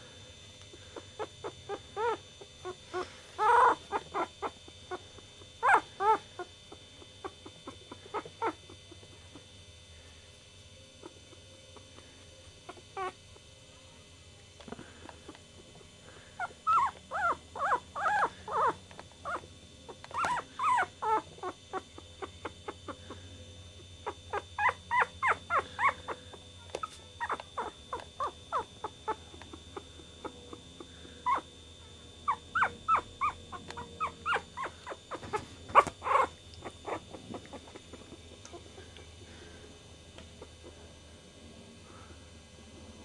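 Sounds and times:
puppies crying: 0:00.7 - 0:09.5, 0:16.4 - 0:23.2, 0:24.0 - 0:31.5, 0:32.3 - 0:38.8.

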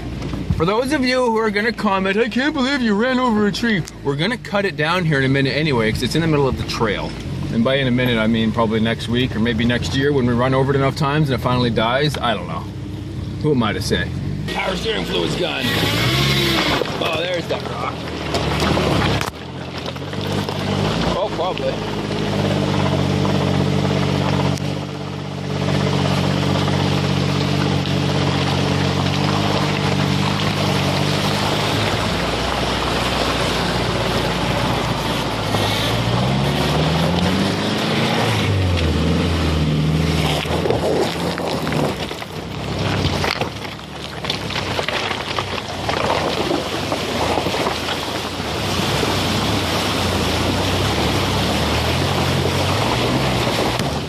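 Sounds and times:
rough noise: 0:00.0 - 0:54.0
vehicle engine pulling slowly: 0:00.0 - 0:54.0
water splashing against tyre: 0:14.2 - 0:54.0.

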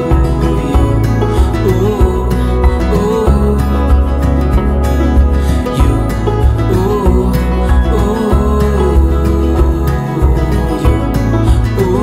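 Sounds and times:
acoustic guitar song: 0:00.0 - 0:12.0
steady bass: 0:00.0 - 0:12.0.

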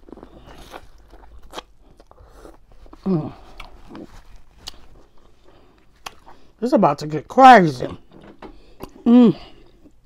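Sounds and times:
chewing corn cob: 0:00.0 - 0:06.5
person humming: 0:09.0 - 0:09.6.

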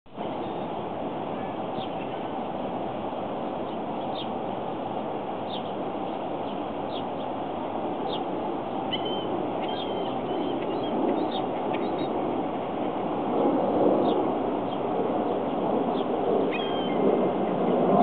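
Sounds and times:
small birds chirping: 0:03.6 - 0:04.4, 0:05.5 - 0:07.4, 0:08.0 - 0:12.2.

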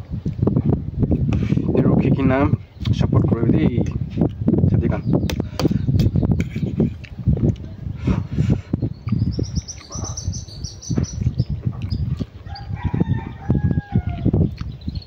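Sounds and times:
small bird chirping: 0:08.7 - 0:15.0
rooster crowing: 0:12.4 - 0:14.3.

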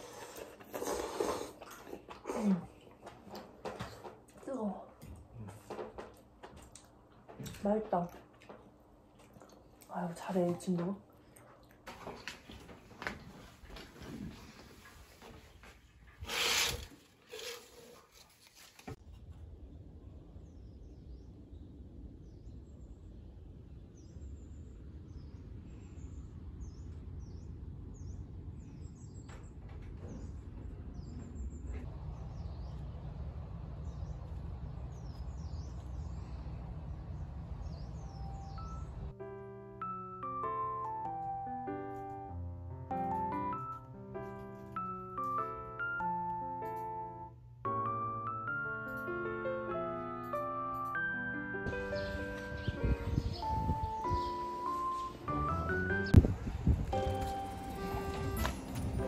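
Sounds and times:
eating noises: 0:00.0 - 0:04.4, 0:05.2 - 0:10.0
low background rumble: 0:19.3 - 0:39.1
small birds chirping: 0:33.8 - 0:39.1, 0:51.7 - 0:56.2
piano music: 0:37.8 - 0:56.3, 0:56.9 - 0:59.0.

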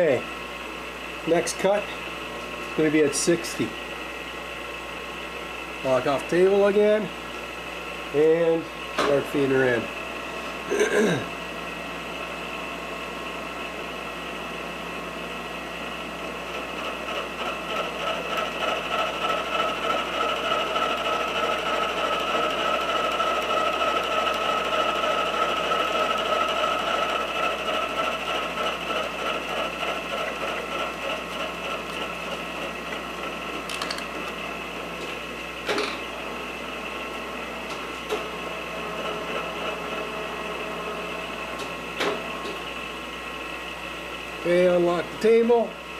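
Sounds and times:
milling machine cutting steel: 0:16.2 - 0:43.4.

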